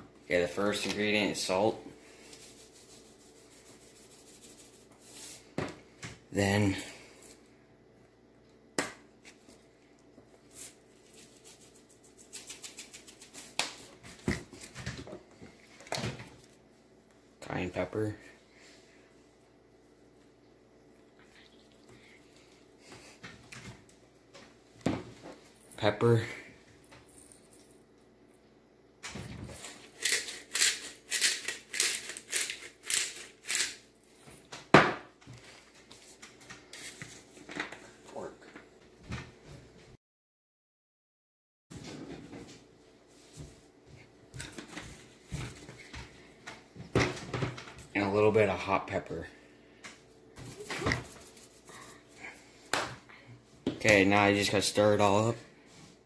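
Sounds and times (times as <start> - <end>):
shaker jar rattling: 10.5 - 13.9
pepper grinder rasping: 11.2 - 13.5, 29.6 - 33.9.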